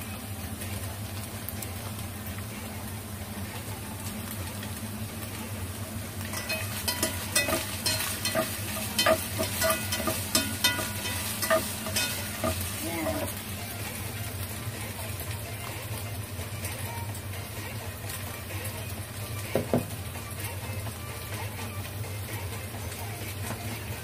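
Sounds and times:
meat frying in a pan: 0:00.0 - 0:24.0
utensil scraping and knocking pan: 0:06.3 - 0:13.3.

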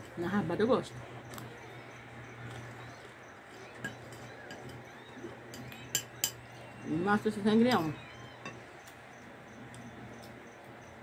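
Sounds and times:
low steady hum: 0:00.0 - 0:11.0
metal spoon clinking on glass bowl: 0:05.5 - 0:06.6.

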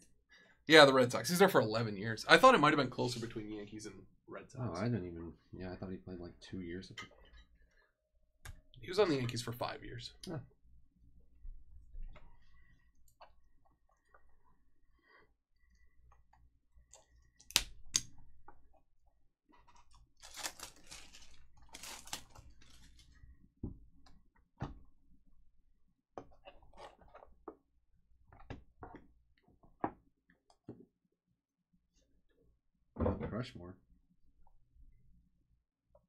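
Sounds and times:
plastic shrink wrap crinkling: 0:19.6 - 0:23.2.

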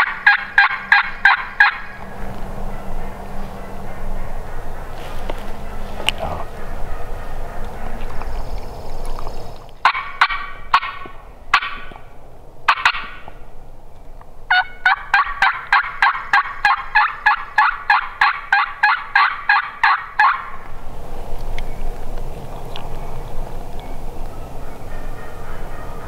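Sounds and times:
turkey yelping and clucking: 0:00.0 - 0:08.6, 0:09.8 - 0:12.0, 0:12.7 - 0:13.4, 0:14.5 - 0:20.6.

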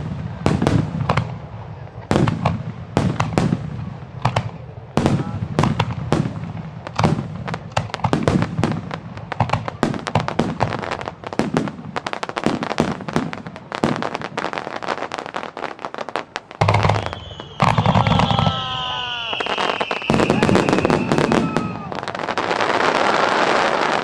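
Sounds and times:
fireworks bangs and crackling: 0:00.0 - 0:24.0
falling firework whistle: 0:16.6 - 0:24.0.

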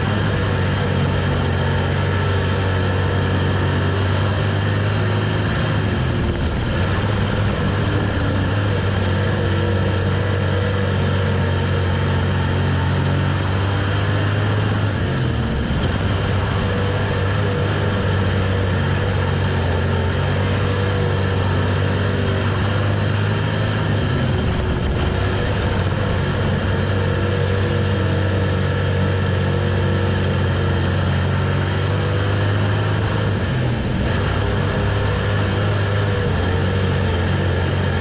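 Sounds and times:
race car engine running hard: 0:00.0 - 0:38.0
tire and track noise: 0:00.0 - 0:38.0.

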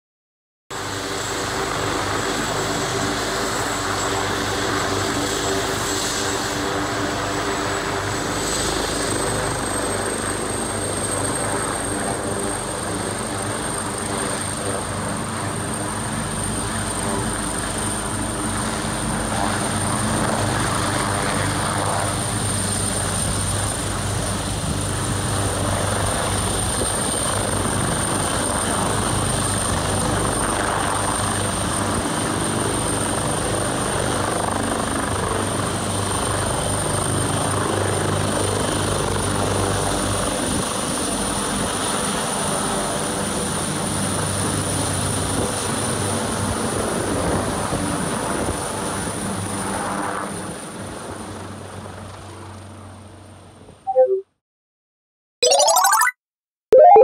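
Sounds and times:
helicopter rotor beat: 0:00.8 - 0:41.6.

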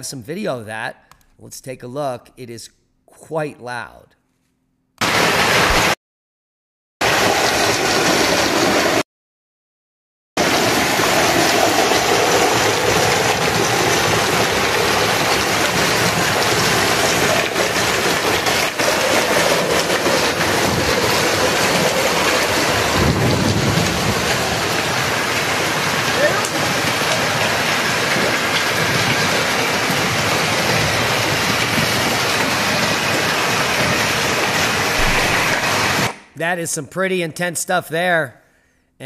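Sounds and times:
hail and rain striking a window: 0:05.0 - 0:06.0, 0:07.0 - 0:09.0, 0:10.4 - 0:36.1.

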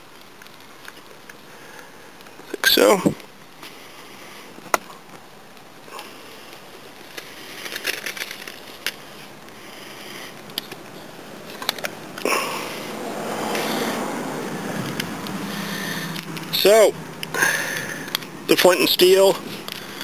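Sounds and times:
tinder burning with crackles: 0:03.2 - 0:18.5.

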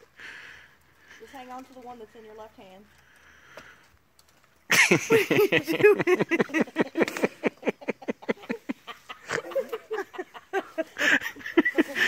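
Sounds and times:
hearty laughter: 0:04.7 - 0:12.0.

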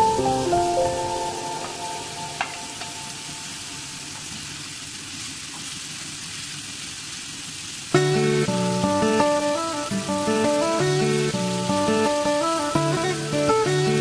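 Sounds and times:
background music: 0:00.0 - 0:03.8, 0:08.0 - 0:14.0
food sizzling in a frying pan: 0:00.0 - 0:14.0.

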